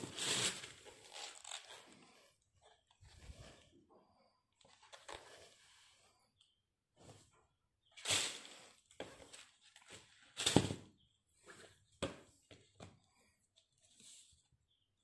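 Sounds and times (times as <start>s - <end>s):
shoe rustling in cardboard box: 0.0s - 1.8s.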